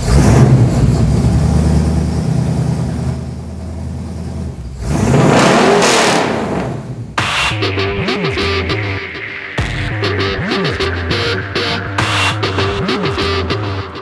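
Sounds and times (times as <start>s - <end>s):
motor engine running and revving: 0.0s - 3.0s, 4.8s - 7.1s
loud abrupt sound: 4.8s - 14.0s.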